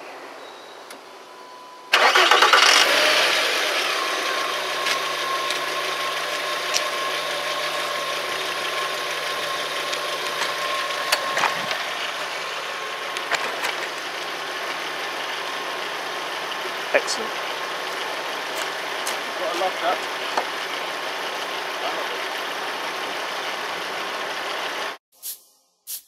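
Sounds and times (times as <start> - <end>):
car engine starting and idling: 1.9 - 25.0
man speaking: 16.9 - 17.4, 19.3 - 20.1.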